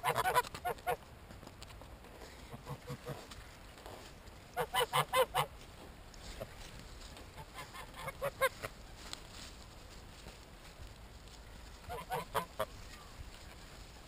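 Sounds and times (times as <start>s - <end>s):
geese honking: 0.0s - 1.0s, 11.9s - 12.7s.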